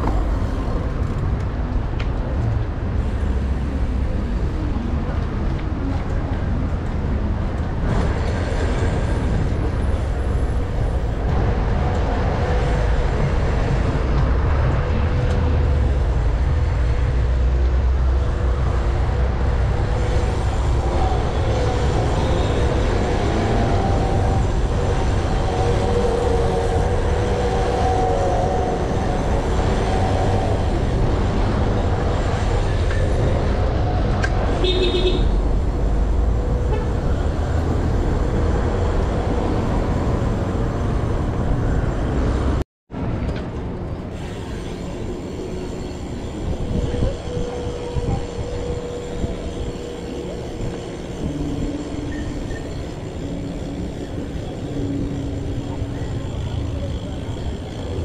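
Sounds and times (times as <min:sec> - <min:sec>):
wind rumble on microphone: 0:00.0 - 0:58.0
car horn toot: 0:34.6 - 0:35.4.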